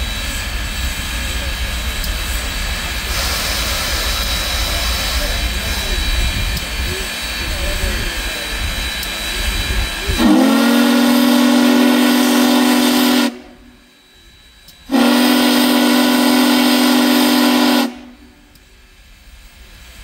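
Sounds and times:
steam whistle blasts: 10.1s - 18.5s.

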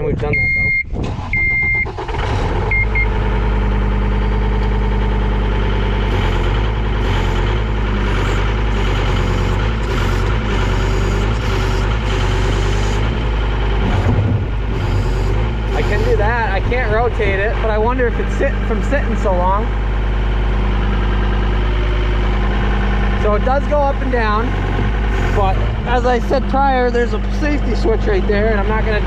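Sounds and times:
diesel engine starting and running: 0.0s - 29.0s
electronic warning beeps: 0.3s - 2.0s, 9.0s - 13.1s, 14.8s - 16.3s.

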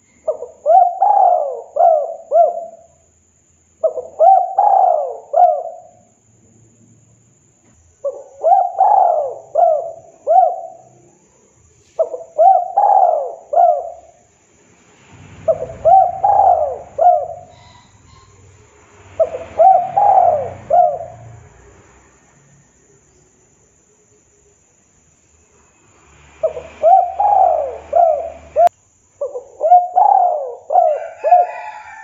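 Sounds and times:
dove cooing: 0.0s - 3.0s, 3.8s - 6.0s, 8.0s - 11.1s, 12.0s - 14.2s, 15.4s - 18.6s, 19.2s - 21.4s, 26.4s - 32.0s.

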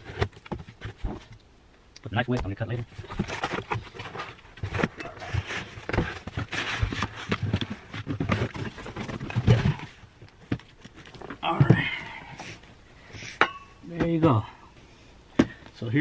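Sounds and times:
cardboard and foam rustling: 0.0s - 1.4s, 2.2s - 12.6s
knocks and dull thumps: 2.3s - 12.2s, 15.3s - 15.7s.

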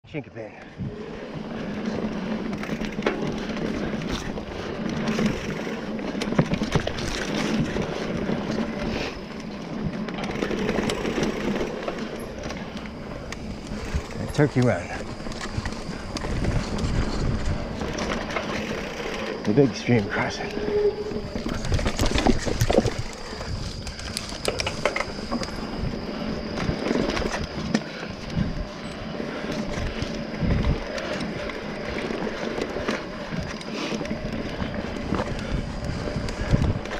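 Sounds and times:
bike tyres on dirt and rock: 0.2s - 36.9s
bike rattling: 0.4s - 36.9s.

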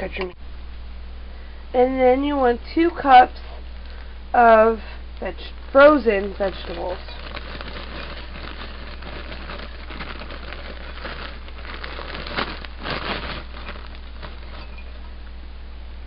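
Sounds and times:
frozen vegetables pattering: 2.9s - 15.2s
plastic bag crinkling: 3.6s - 15.2s.

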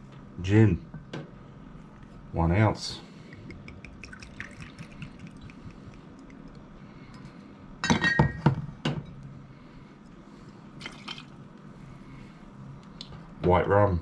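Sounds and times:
liquid trickling over ice: 3.6s - 6.6s, 10.8s - 11.4s
glass bottles clinking: 7.8s - 8.6s.

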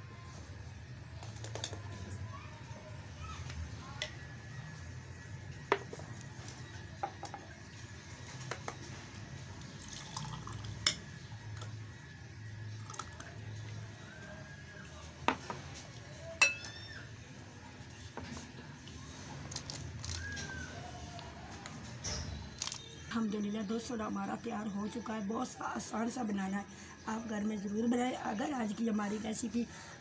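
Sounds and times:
liquid sloshing and trickling: 9.6s - 10.9s
glass and ladle clinking: 9.9s - 11.1s, 16.4s - 16.7s.

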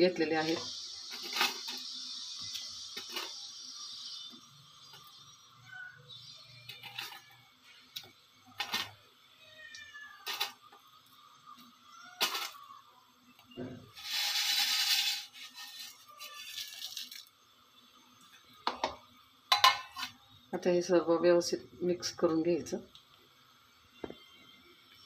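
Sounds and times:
hissing rustle: 0.3s - 5.4s, 13.9s - 17.4s.

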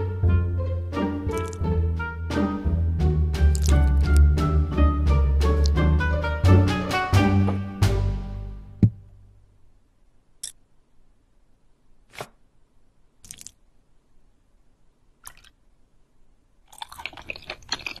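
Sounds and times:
chopsticks tapping plastic brick: 1.3s - 1.6s, 3.5s - 4.3s
rapid small clicks: 1.3s - 1.6s.

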